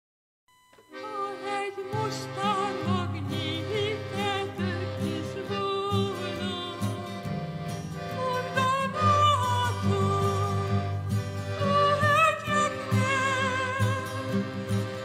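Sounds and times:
acoustic guitar: 0.8 - 15.0
piano accordion chords: 0.8 - 15.0
woman singing: 1.0 - 7.1, 8.1 - 10.8, 11.6 - 14.2.

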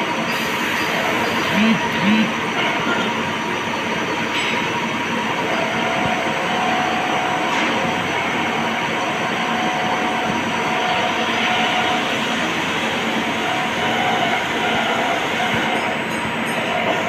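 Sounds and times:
machine shop machinery running: 0.0 - 17.0.

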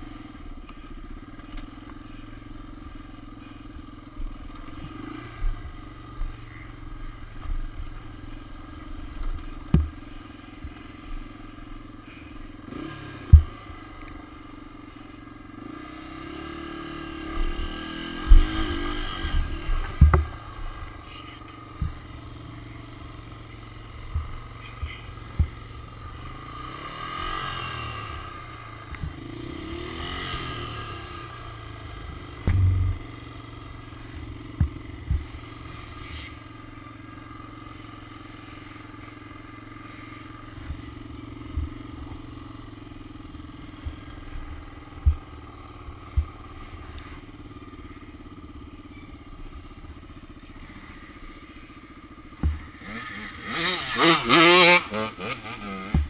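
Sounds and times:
dirt bike engine revving: 0.0 - 56.0
bike thumping over bumps: 9.0 - 11.2, 13.2 - 14.4, 17.3 - 21.0, 21.7 - 26.4, 27.3 - 29.3, 32.0 - 36.4, 40.5 - 47.1, 52.2 - 56.0.

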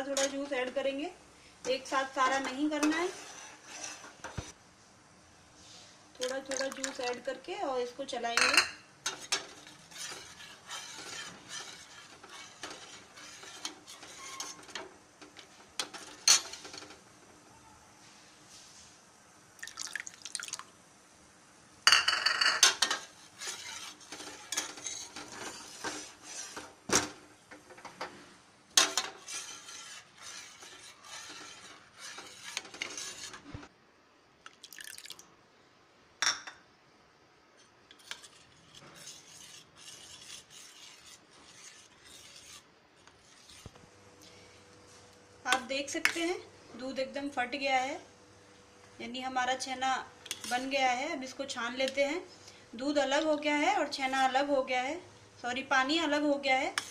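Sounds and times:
spoon scraping steel pan: 1.7 - 4.6, 8.4 - 17.0, 22.5 - 26.8, 28.8 - 33.7, 37.9 - 43.8, 50.2 - 50.8, 56.6 - 56.9
wet liquid sounds: 34.5 - 35.3.

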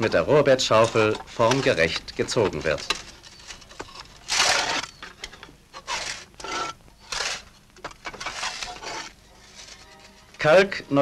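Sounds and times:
shovel scraping through sand: 4.3 - 4.9, 5.8 - 7.5.

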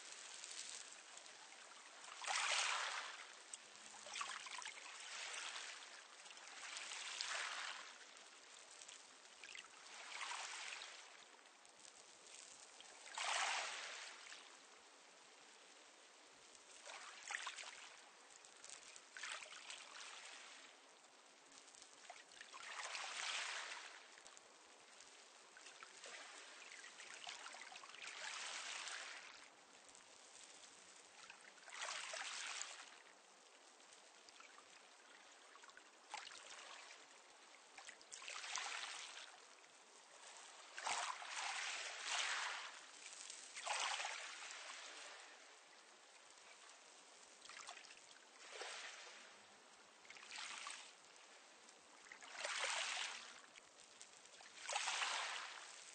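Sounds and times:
waves washing onto pebble beach: 54.7 - 55.9.

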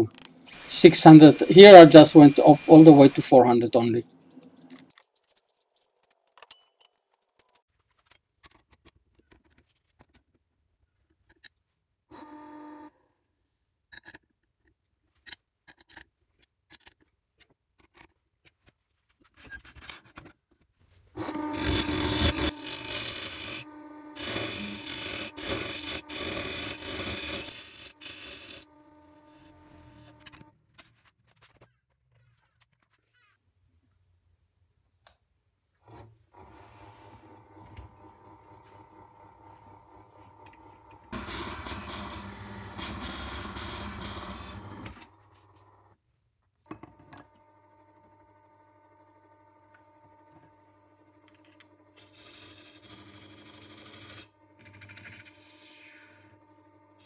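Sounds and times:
lathe motor hum: 0.0 - 3.8, 21.2 - 30.5, 36.4 - 45.9, 47.2 - 57.0
lathe tool scraping wood: 0.0 - 4.7, 21.2 - 30.5, 35.8 - 45.8, 51.3 - 57.0.

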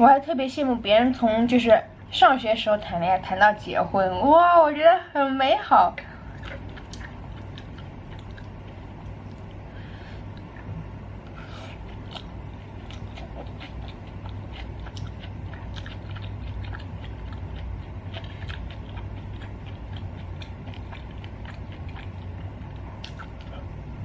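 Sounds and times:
steady low hum: 0.0 - 24.0
close chewing of meat: 6.2 - 24.0.

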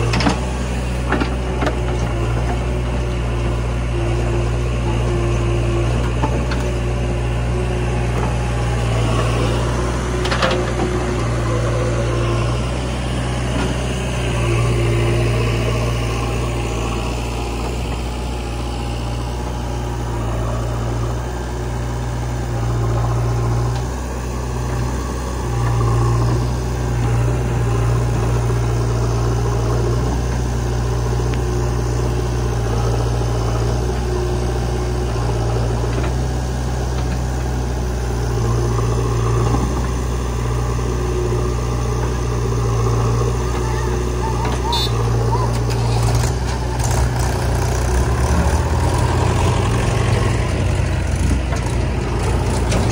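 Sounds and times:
backhoe loader engine working: 0.0 - 52.9
tractor diesel engine idling: 0.0 - 52.9.

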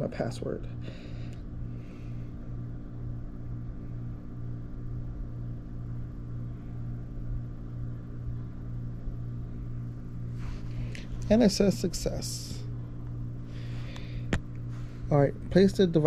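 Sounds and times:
low hum: 0.0 - 16.0.

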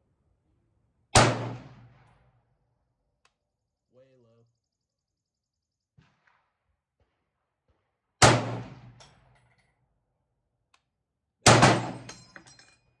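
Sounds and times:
rifle shots echoing: 1.1 - 2.3, 6.0 - 9.4, 11.4 - 12.1
light metal clinks: 11.8 - 13.0.

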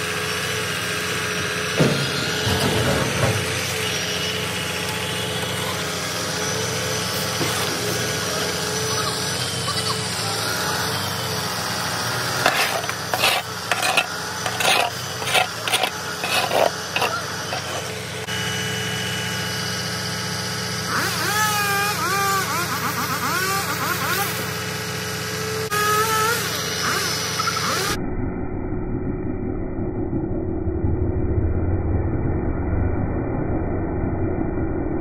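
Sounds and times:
truck engine running: 0.0 - 28.0.

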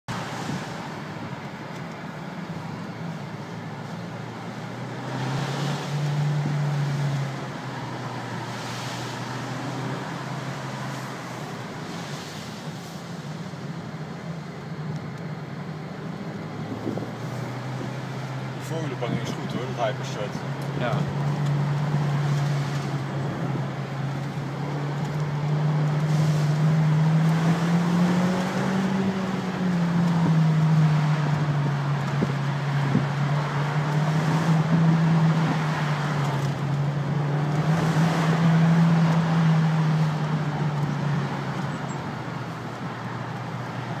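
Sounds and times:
road and tyre noise: 0.0 - 44.0
car engine droning: 0.1 - 44.0.

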